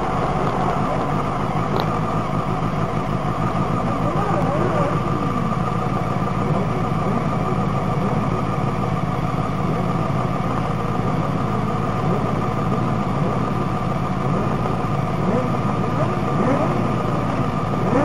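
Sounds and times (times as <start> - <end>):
faint engines revving: 0.0 - 18.0
race car engine idling: 0.0 - 18.0.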